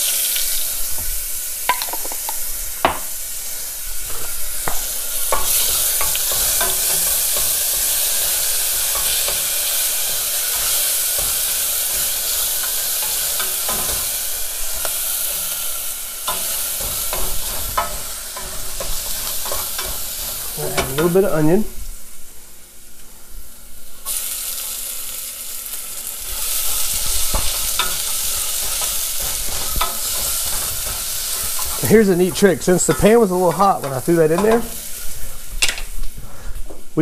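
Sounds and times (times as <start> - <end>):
garlic sizzling in hot oil: 0.0 - 37.0
wooden spoon stirring in pot: 26.4 - 35.3.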